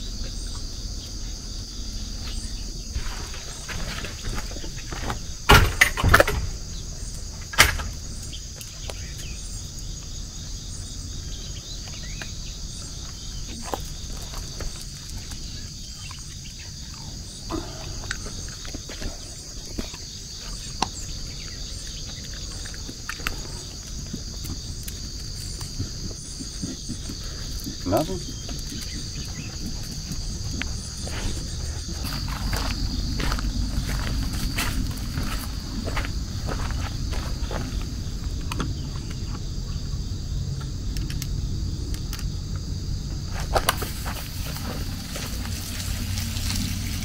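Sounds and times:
insects chorus drone: 0.0s - 47.0s
low rumbling noise: 0.0s - 47.0s
low rumble: 23.6s - 43.3s.

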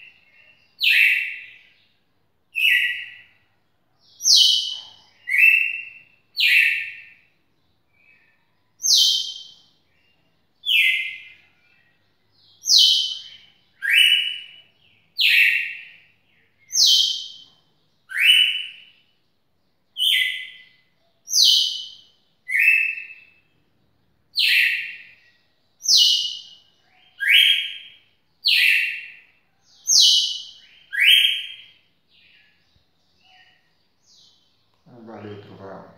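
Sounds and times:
cardinal singing: 34.9s - 35.9s.

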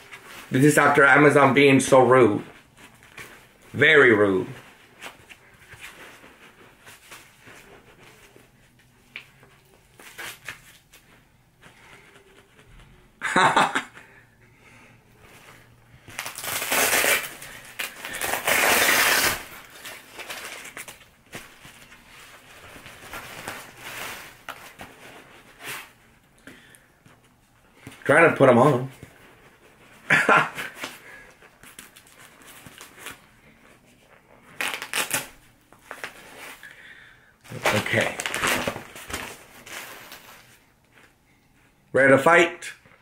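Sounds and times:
glove scraping rustle: 0.0s - 12.9s, 15.2s - 26.0s
boxing gloves rustling: 0.0s - 41.8s
boxing glove rasping scrapes: 16.4s - 19.6s.

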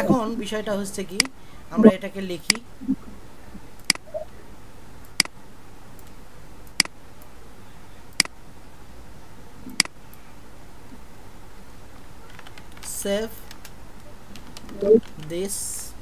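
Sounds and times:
faint steady hum: 0.0s - 16.0s
computer mouse clicking: 13.5s - 15.4s.

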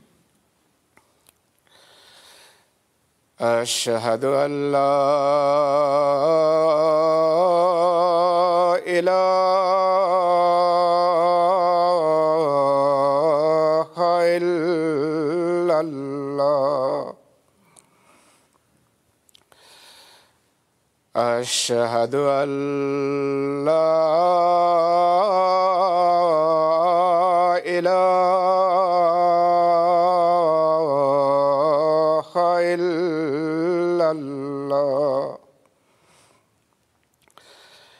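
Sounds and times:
man chanting call to prayer: 3.4s - 17.2s, 21.2s - 35.4s.

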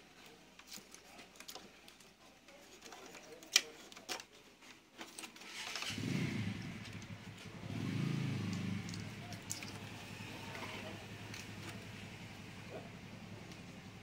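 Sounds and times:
plastic parts clicking: 0.2s - 5.9s, 8.4s - 9.9s
vehicle engine rumble: 5.8s - 14.0s.

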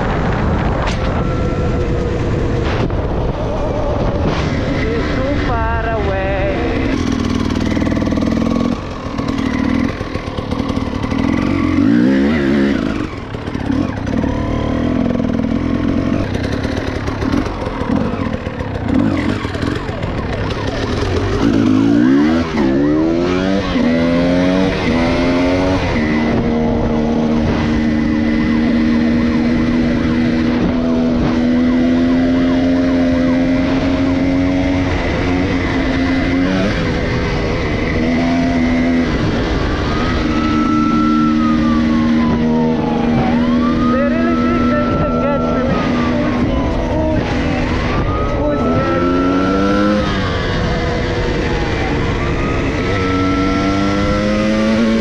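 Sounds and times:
wind on microphone: 0.0s - 12.1s
dirt bike engine revving: 0.0s - 55.0s.

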